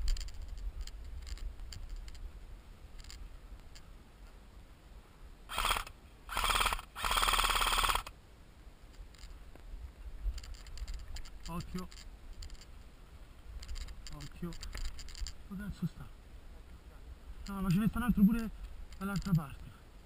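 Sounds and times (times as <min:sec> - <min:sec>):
airsoft gun full-auto bursts: 0:05.5 - 0:08.1.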